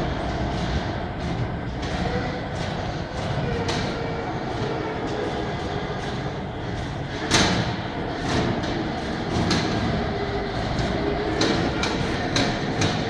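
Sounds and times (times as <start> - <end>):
transport cart rumbling: 0.0 - 13.0
cart clicks and knocks: 0.5 - 13.0.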